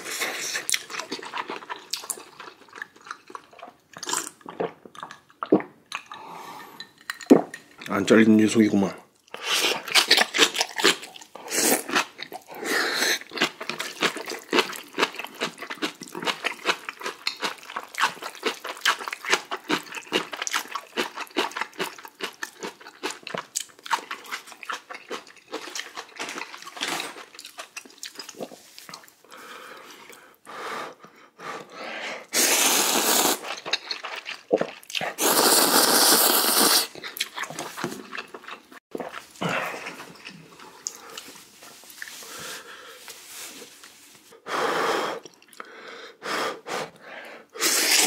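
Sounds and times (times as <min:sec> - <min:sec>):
wet chewing and smacking: 0:00.0 - 0:06.2, 0:09.2 - 0:29.2, 0:33.4 - 0:35.2, 0:36.9 - 0:42.3, 0:45.2 - 0:45.7
loud noodle slurps: 0:32.2 - 0:37.8, 0:47.6 - 0:48.0.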